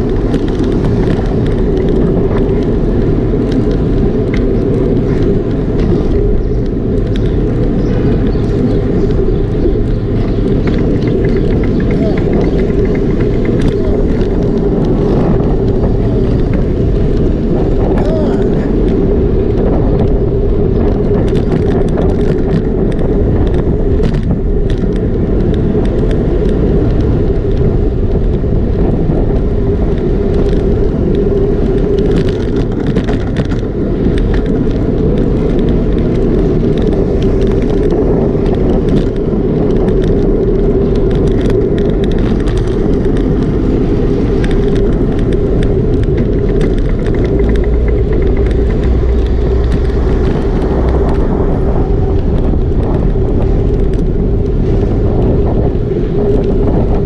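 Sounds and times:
tyres rumbling on asphalt: 0.0 - 57.0
wind on microphone: 0.0 - 57.0.

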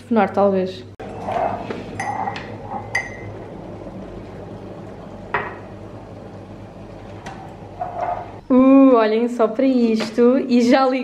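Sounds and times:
ceramic mug clinking: 1.9 - 3.4.

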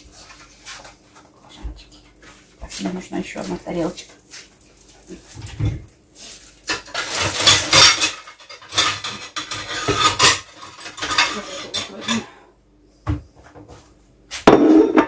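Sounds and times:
plates clattering: 6.7 - 12.4, 14.4 - 15.0.

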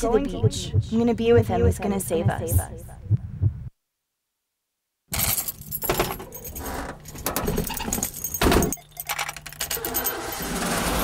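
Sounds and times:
keys jangling: 5.1 - 10.6
handling noise: 5.1 - 10.9.

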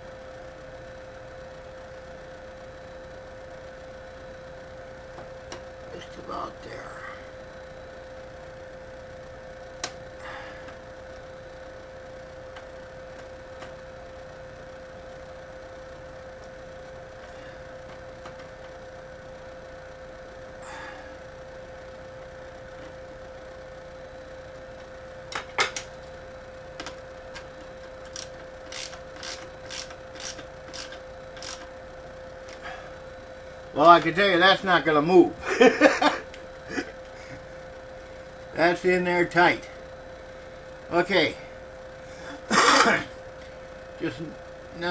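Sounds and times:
steady high-pitched hum: 0.0 - 44.9
screwdriver clicks: 28.0 - 31.7
screwdriver rasping strokes: 28.1 - 31.6.

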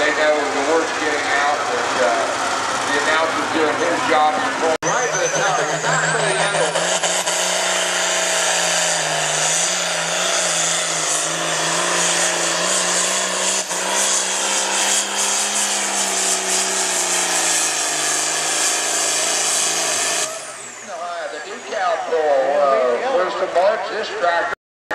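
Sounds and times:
tractor diesel engine under load: 0.0 - 23.8
high whine: 1.2 - 11.7.

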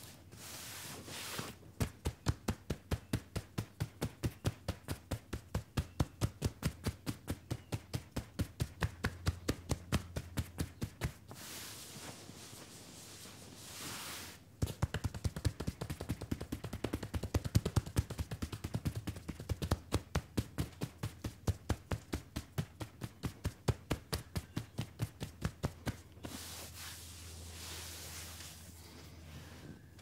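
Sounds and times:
hands rubbing denim: 0.0 - 30.0.

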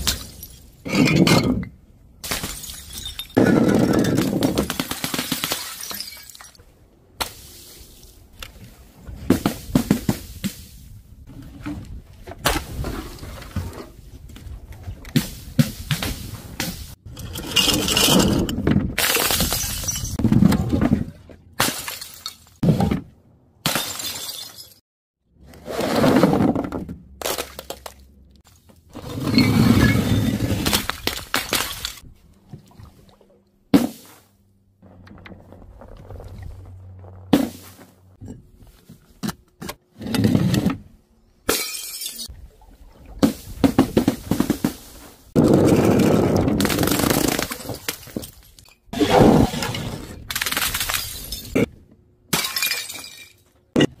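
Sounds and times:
glass bottles shattering: 2.3 - 4.6, 5.3 - 6.6, 17.2 - 20.2, 23.7 - 24.8, 29.3 - 32.0, 41.5 - 42.3, 50.4 - 51.7, 52.3 - 53.4
objects smashing on paving: 29.9 - 32.0, 45.4 - 48.4.

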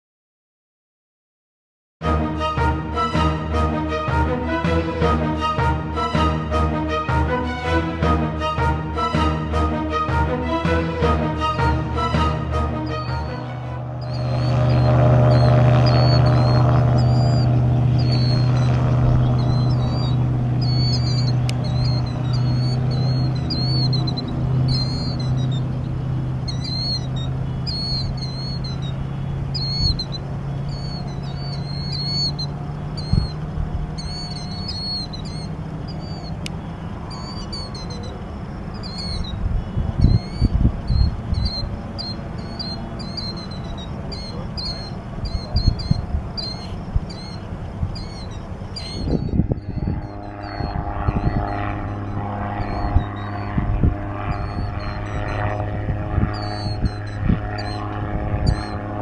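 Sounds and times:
gyroplane engine and propeller drone: 2.0 - 59.0
birds chirping: 2.6 - 59.0
wind gusts on microphone: 14.0 - 59.0.

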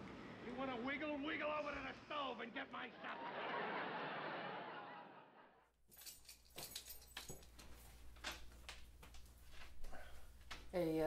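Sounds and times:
audience laughter: 2.7 - 5.7
faint metallic jingling: 5.8 - 8.1.

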